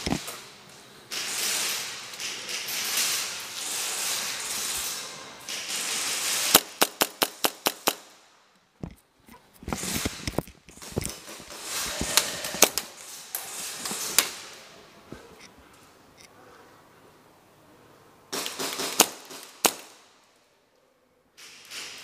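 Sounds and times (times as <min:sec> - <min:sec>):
rustling: 0:08.8 - 0:16.4
airsoft pistol shots: 0:18.4 - 0:20.0.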